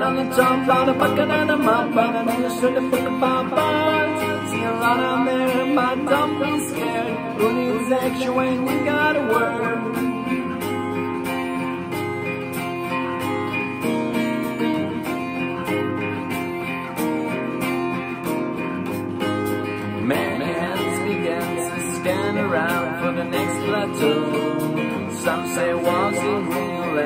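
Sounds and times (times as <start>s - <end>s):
person singing: 0.0s - 12.0s, 19.9s - 27.0s
acoustic guitar strummed: 0.0s - 27.0s.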